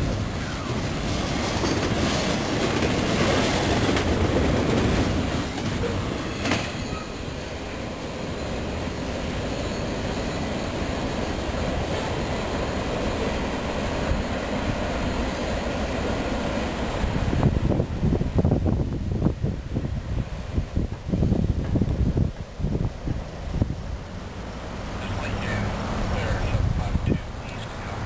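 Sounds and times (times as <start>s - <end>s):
train wheels clattering: 0.0s - 7.6s.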